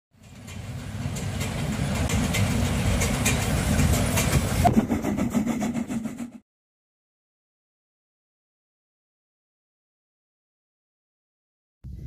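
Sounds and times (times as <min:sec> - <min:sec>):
steam locomotive exhaust beats: 0:00.1 - 0:06.4.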